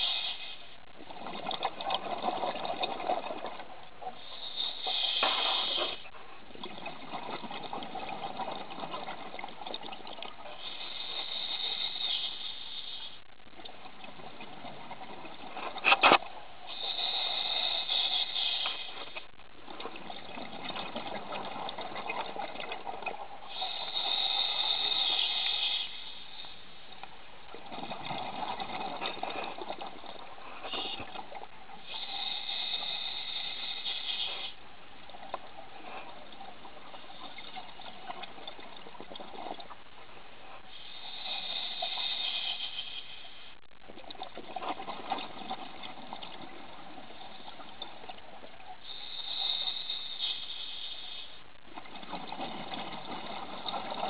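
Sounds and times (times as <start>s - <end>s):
regulator hissing inhalations: 0.0s - 0.8s, 4.2s - 6.2s, 10.6s - 13.3s, 16.7s - 19.3s, 23.5s - 26.8s, 31.8s - 34.6s, 40.6s - 43.7s, 48.8s - 51.5s.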